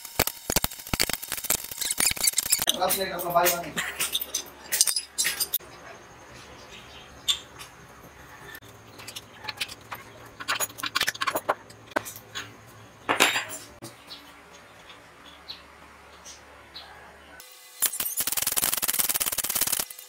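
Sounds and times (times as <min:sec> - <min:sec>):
metal wrench clicks and clinks: 0:00.2 - 0:05.6.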